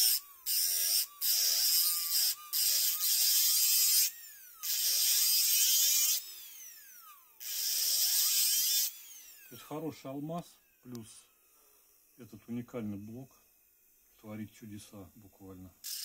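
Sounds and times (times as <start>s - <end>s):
diamond disc grinding stone: 0.0s - 6.2s
motor whine: 0.0s - 9.9s.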